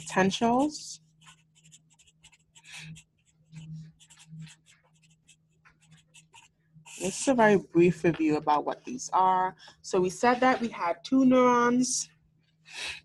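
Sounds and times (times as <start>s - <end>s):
marker writing on paper: 0.0s - 7.5s.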